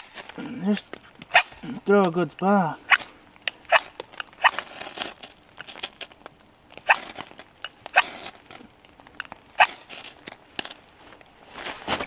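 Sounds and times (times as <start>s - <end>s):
knife scraping a fire steel rod: 7.9s - 8.4s.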